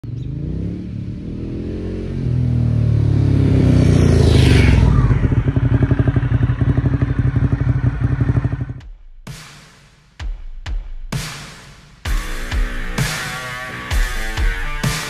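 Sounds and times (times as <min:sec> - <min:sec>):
motorcycle engine passing: 0:00.1 - 0:08.8.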